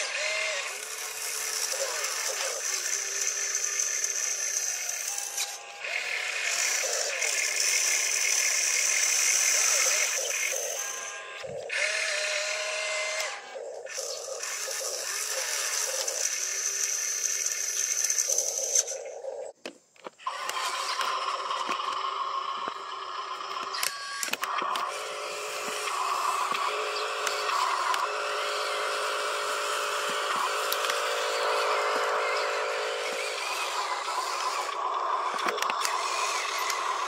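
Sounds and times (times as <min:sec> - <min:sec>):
electric motors whining: 0:00.0 - 0:37.0
clicks: 0:19.6 - 0:24.9, 0:25.6 - 0:28.1, 0:30.0 - 0:31.2, 0:33.6 - 0:37.0.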